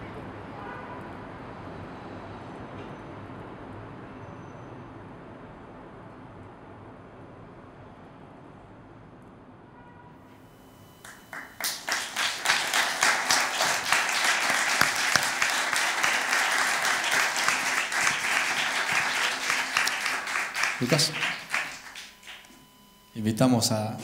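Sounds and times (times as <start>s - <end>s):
audience applauding: 11.0s - 22.7s.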